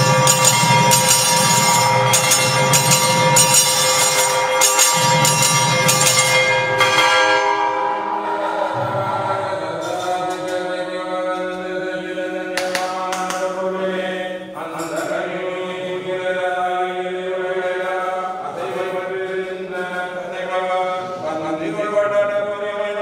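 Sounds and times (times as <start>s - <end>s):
voices chanting in unison: 8.1s - 23.0s.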